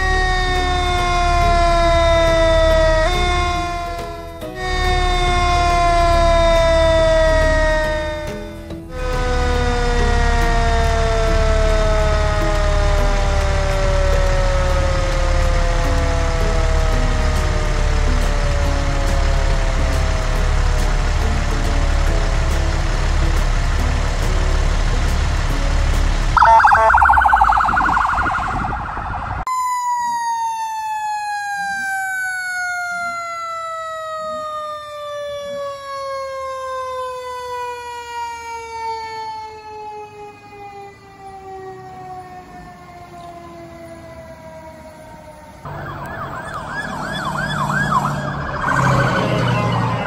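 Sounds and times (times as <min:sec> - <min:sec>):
siren fast electronic yelp: 0:00.0 - 0:17.1, 0:26.4 - 0:36.5, 0:45.6 - 0:50.0
siren tone falling slowly: 0:00.0 - 0:21.4, 0:26.4 - 0:50.0
diesel engine idling: 0:00.0 - 0:29.4, 0:45.6 - 0:50.0.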